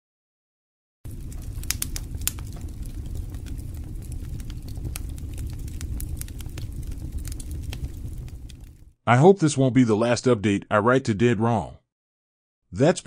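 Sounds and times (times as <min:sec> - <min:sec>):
steady low rumble: 0:01.1 - 0:08.9
crackles and sharp pops: 0:01.1 - 0:09.0.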